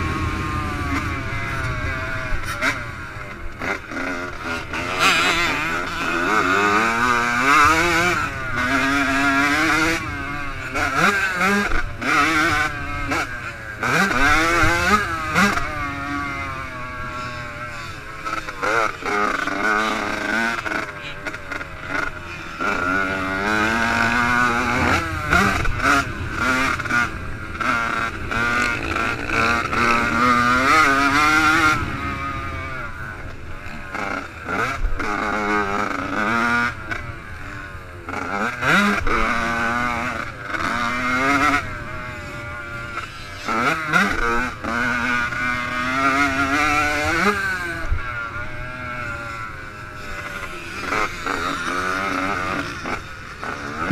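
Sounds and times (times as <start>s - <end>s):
motorcycle engine revving: 0.0s - 53.9s.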